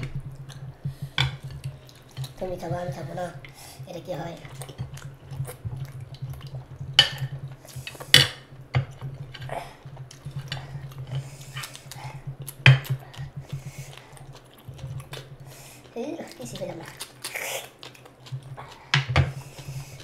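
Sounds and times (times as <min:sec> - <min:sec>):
chewing and lip-smacking: 0:00.0 - 0:03.6, 0:04.2 - 0:20.0
low steady hum: 0:00.0 - 0:20.0
wet squishing of fingers in food: 0:00.0 - 0:20.0.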